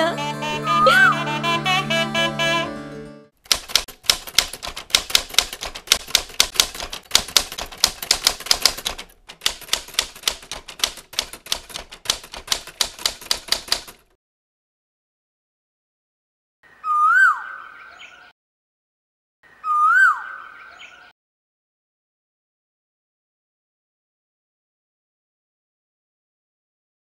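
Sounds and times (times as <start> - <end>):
typewriter key clacks: 3.4 - 14.1.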